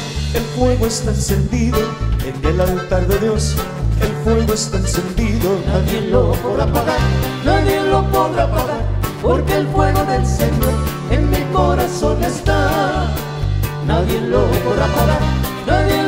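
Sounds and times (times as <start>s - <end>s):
drums: 0.0s - 16.0s
electric bass: 0.0s - 16.0s
guitar: 0.0s - 16.0s
button accordion: 1.5s - 8.4s
voices singing: 4.1s - 16.0s.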